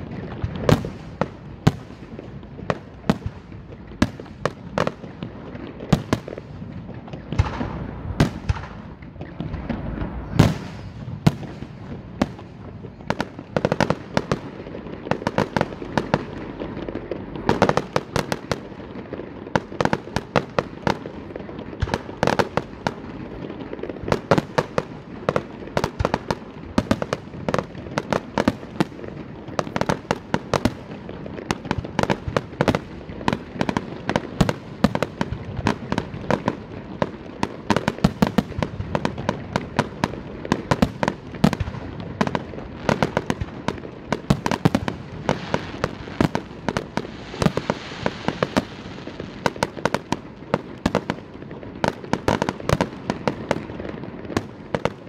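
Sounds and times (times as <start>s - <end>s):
fireworks bursting with sharp bangs: 0.0s - 55.0s.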